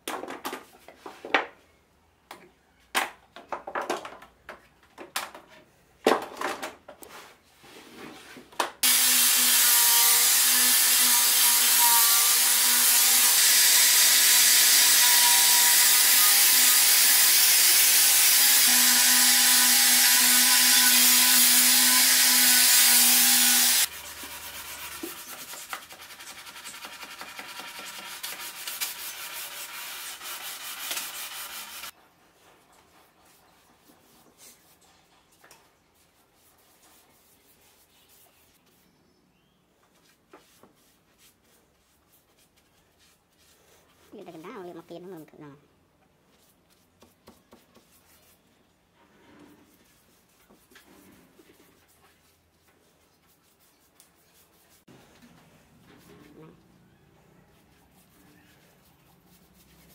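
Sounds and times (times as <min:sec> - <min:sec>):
electric sander on wood: 0:08.8 - 0:23.9
sandpaper rubbing by hand: 0:18.4 - 0:31.9, 0:36.0 - 0:38.8, 0:49.6 - 0:54.9, 0:57.6 - 0:59.9.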